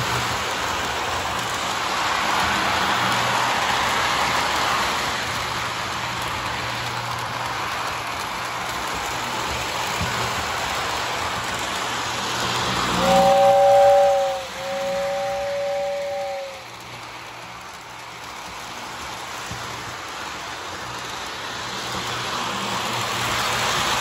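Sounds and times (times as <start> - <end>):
toy train rolling on track: 0.0 - 24.0
two-note tone: 13.0 - 16.6.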